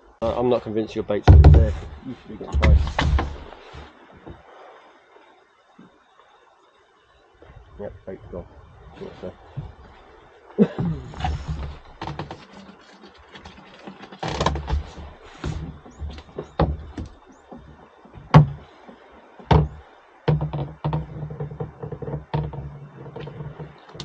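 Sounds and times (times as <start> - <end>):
fishing tackle knocks and clicks: 11.2 - 18.6, 19.4 - 24.0.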